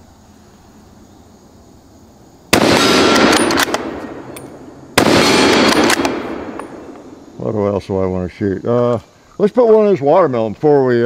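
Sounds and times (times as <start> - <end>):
rifle shots with echo: 2.5 - 7.2.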